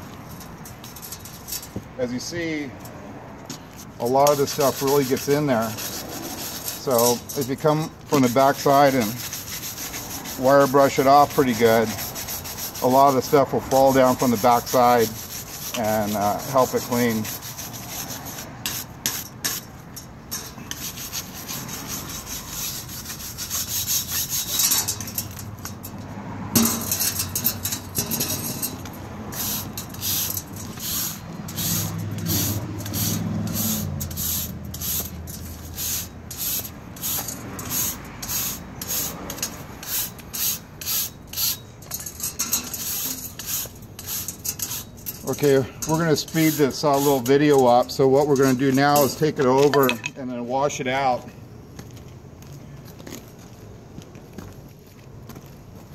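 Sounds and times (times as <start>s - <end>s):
wire brush scrubbing metal screen: 0.2s - 2.7s, 3.8s - 50.0s.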